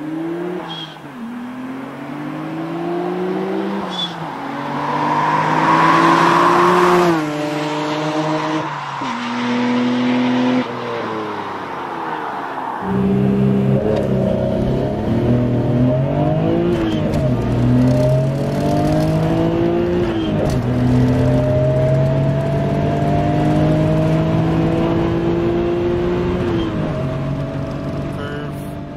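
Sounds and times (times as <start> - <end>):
car passing by: 2.6 - 13.7
car engine accelerating from inside: 12.9 - 28.9.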